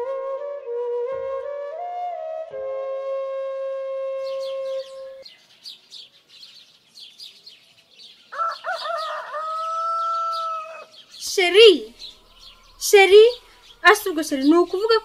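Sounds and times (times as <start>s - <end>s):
held flute note: 0.0s - 5.2s
small birds chirping: 4.2s - 15.0s
rooster crowing: 8.3s - 11.0s.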